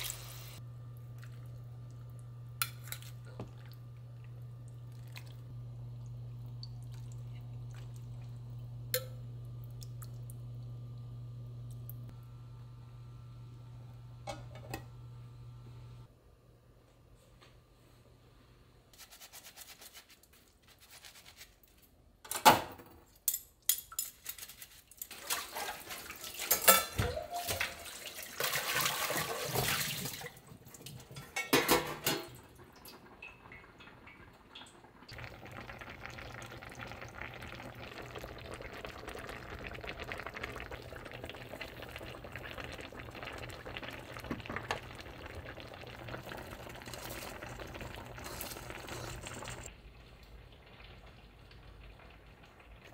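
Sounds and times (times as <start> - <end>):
running tap water: 0.0 - 0.6
low hiss and hum: 0.0 - 19.0
metal dishes clinking: 31.1 - 32.4.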